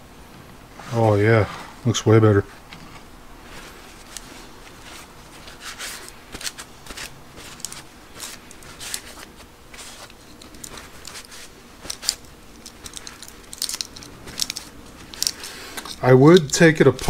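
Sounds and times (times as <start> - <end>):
paper towel rubbing on metal: 3.4 - 12.2.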